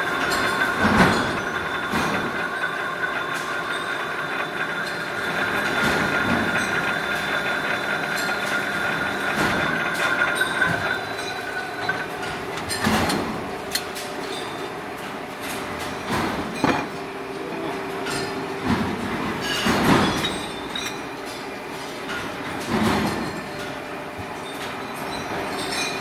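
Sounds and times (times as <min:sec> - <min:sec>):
metal spinning machine squealing: 0:00.0 - 0:14.8, 0:24.4 - 0:26.0.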